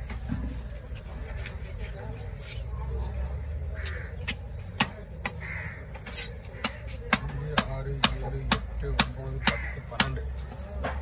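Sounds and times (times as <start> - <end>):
crow calls: 3.7 - 4.5, 5.2 - 7.7, 9.2 - 10.2
knife chopping fish on wood: 4.2 - 10.2.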